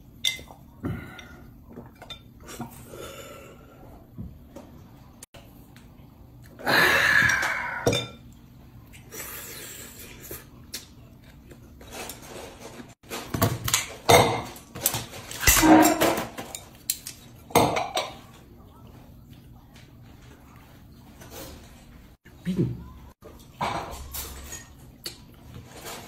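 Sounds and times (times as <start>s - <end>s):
dishes clinking: 0.2s - 0.6s, 7.9s - 8.3s, 14.0s - 16.8s, 17.5s - 18.4s, 23.3s - 24.9s.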